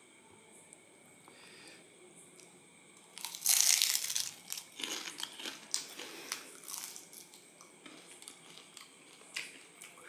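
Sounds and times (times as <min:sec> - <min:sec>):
crunching spring roll chewing: 0:03.1 - 0:10.0.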